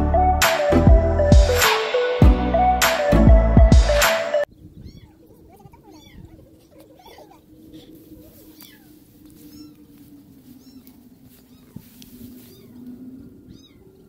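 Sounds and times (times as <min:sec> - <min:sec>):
cat meowing: 0:04.8 - 0:07.4, 0:10.6 - 0:12.8, 0:13.5 - 0:13.9.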